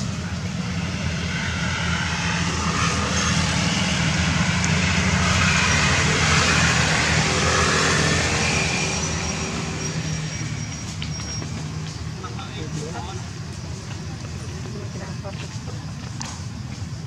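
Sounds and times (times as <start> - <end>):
vehicle passing: 0.0 - 15.2.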